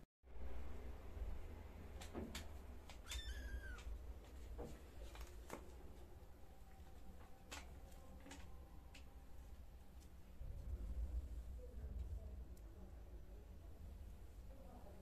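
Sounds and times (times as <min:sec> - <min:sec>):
kitten mewing: 0:03.0 - 0:03.9.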